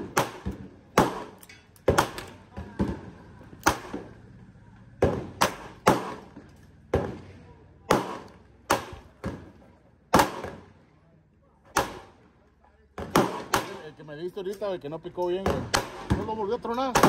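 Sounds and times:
pistol gunshots: 0.0s - 4.1s, 5.0s - 9.5s, 10.1s - 10.7s, 11.7s - 12.2s, 13.0s - 14.0s, 15.4s - 17.0s
distant gunshots: 0.0s - 4.2s, 5.0s - 9.5s, 10.1s - 10.7s, 11.7s - 12.2s, 13.0s - 13.9s, 15.4s - 16.3s.

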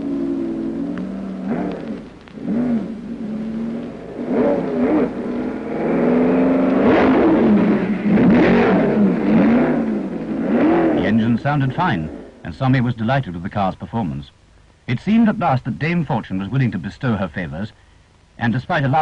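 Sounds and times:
racing car engine revving: 0.0s - 12.5s.

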